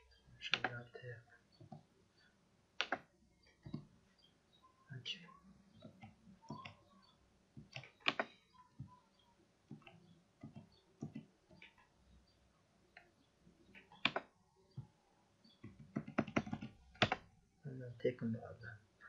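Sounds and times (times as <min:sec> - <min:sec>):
computer keyboard and mouse clicks: 0:00.5 - 0:00.8, 0:02.8 - 0:03.9, 0:05.7 - 0:06.8, 0:07.6 - 0:09.0, 0:09.7 - 0:11.9, 0:12.9 - 0:14.9, 0:15.5 - 0:17.3.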